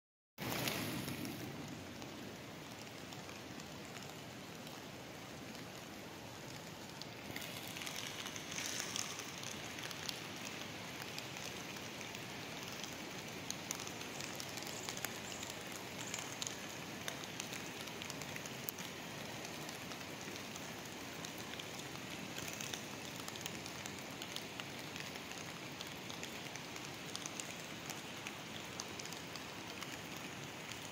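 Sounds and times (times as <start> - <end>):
rain falling: 0.4 - 30.9
ticks of raindrops: 0.4 - 30.9.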